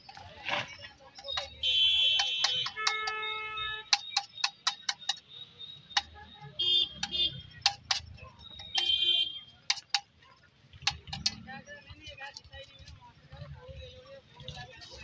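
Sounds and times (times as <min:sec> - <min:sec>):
metal spatula tapping on iron pan: 0:01.2 - 0:05.3, 0:05.9 - 0:10.2, 0:10.8 - 0:11.5.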